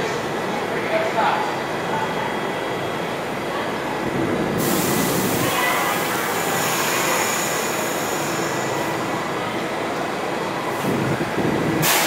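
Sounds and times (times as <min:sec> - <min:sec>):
subway train equipment rumbling: 0:00.0 - 0:12.0
loud hiss: 0:04.6 - 0:08.8.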